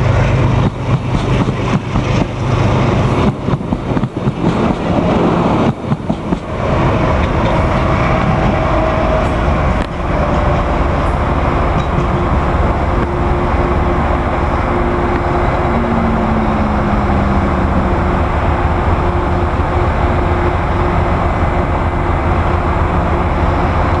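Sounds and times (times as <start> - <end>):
train rumble and rushing: 0.0 - 24.0
train wheels clicking on rail joints: 0.1 - 14.4.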